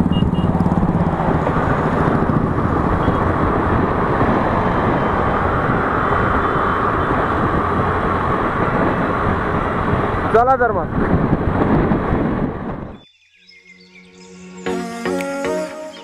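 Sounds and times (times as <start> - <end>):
scooter engine and tyre noise: 0.0 - 13.0
wind on microphone: 0.0 - 13.1.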